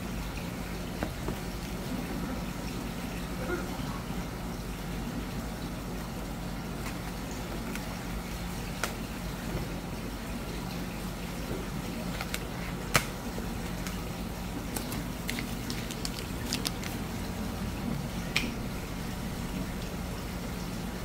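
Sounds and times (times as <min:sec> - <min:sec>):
machine hum: 0:00.0 - 0:21.0.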